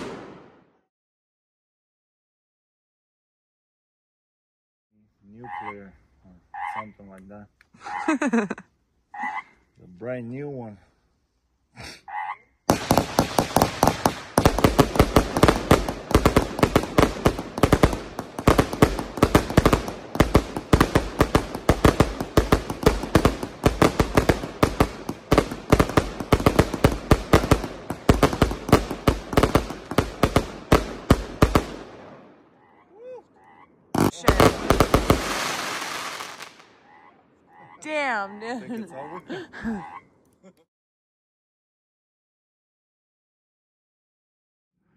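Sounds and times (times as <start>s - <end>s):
fireworks cake firing bangs: 0.0s - 0.7s, 12.7s - 32.2s, 34.0s - 36.6s
frogs croaking: 5.4s - 7.0s, 9.1s - 9.6s, 12.1s - 12.6s, 39.0s - 40.1s.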